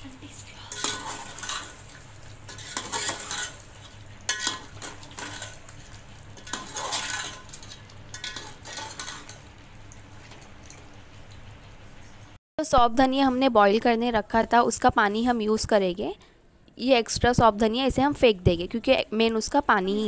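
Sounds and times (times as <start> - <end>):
spoon scraping metal pot: 0.7 - 1.8, 2.5 - 3.6, 4.3 - 5.7, 6.4 - 9.4.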